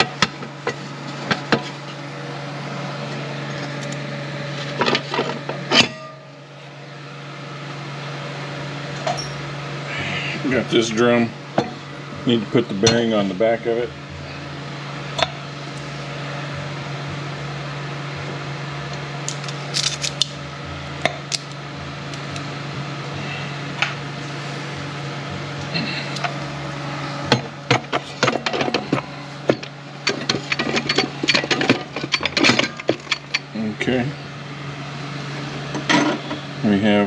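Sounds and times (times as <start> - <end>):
steady hum: 0.0 - 37.0
metal parts clinking: 19.3 - 20.3, 28.0 - 33.5.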